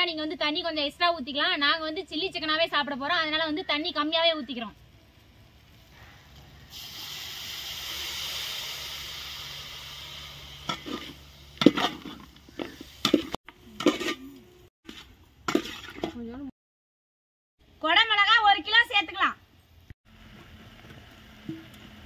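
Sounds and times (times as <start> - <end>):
water sizzling in hot pan: 6.7 - 13.4
metal ladle scraping pan: 10.6 - 14.3, 14.9 - 16.2.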